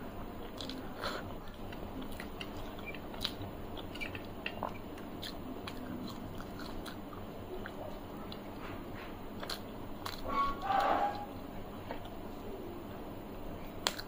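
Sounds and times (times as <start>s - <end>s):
close chewing with wet clicks: 0.4s - 10.3s, 13.6s - 14.0s.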